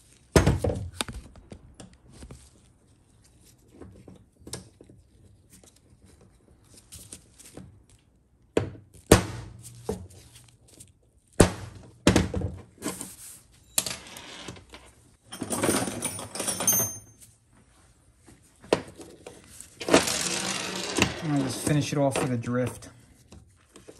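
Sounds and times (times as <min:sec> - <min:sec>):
scraping and rubbing: 0:19.0 - 0:22.9.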